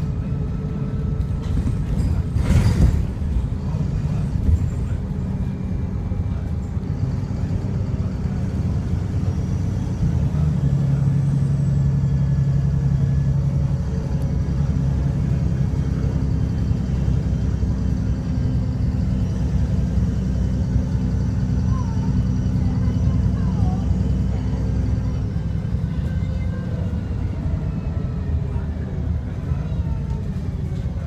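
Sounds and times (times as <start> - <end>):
bus diesel engine drone: 0.0 - 31.0
road noise: 0.0 - 31.0.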